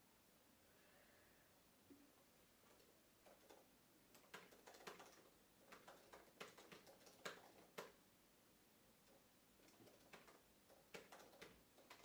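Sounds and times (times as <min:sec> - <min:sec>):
laptop keyboard typing: 0:02.6 - 0:08.0, 0:09.0 - 0:12.0.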